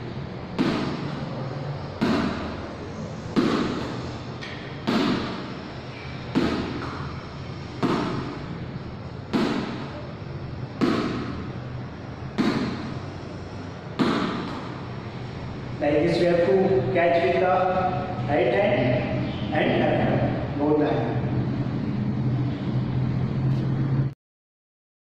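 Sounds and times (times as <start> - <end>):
ball thumping against wall: 12.4 - 12.9, 14.0 - 14.8.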